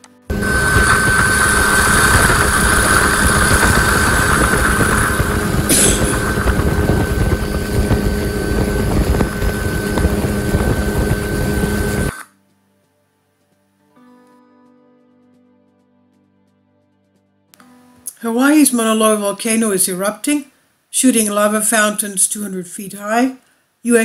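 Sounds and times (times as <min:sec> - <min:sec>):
helicopter engine and rotor drone: 0:00.3 - 0:12.2
short hiss: 0:05.7 - 0:06.3.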